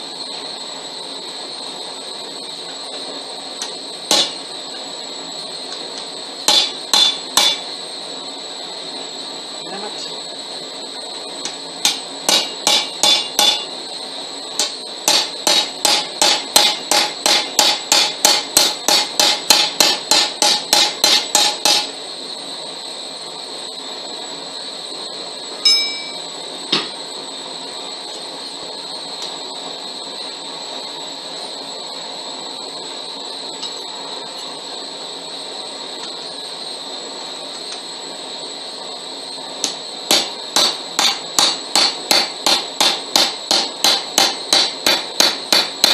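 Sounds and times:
steady background hum: 0.0s - 45.9s
hammer striking steel on anvil: 4.1s - 4.4s, 6.5s - 7.6s, 11.8s - 13.7s, 14.6s - 21.9s, 25.7s - 26.9s, 39.6s - 45.9s.

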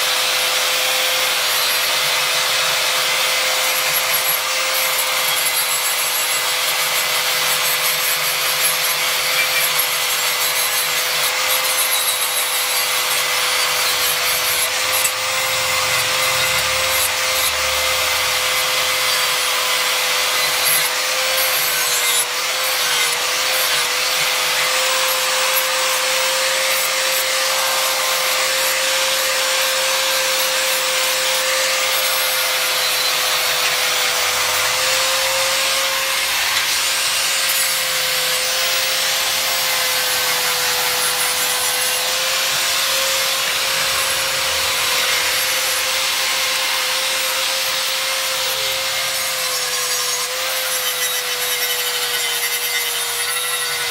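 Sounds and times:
angle grinder grinding steel: 0.0s - 53.9s.

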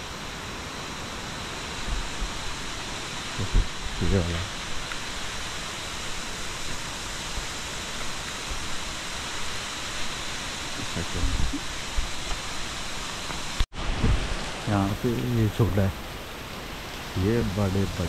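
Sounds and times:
water pouring down waterfall: 1.1s - 18.0s.

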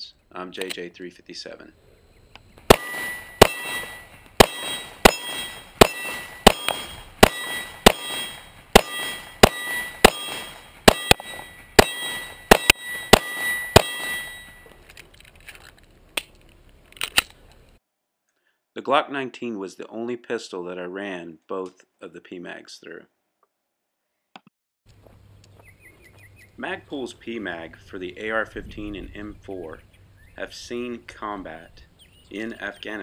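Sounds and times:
pistol shots: 2.6s - 14.6s
steel targets ringing: 2.7s - 14.8s.

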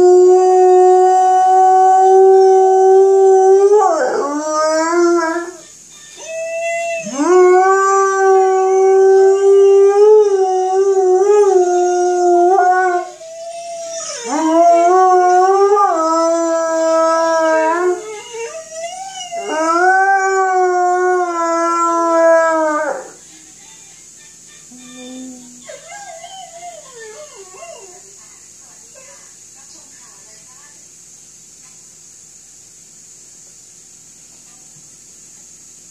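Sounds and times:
dog howling: 0.0s - 5.6s, 6.2s - 23.2s, 25.0s - 28.1s.

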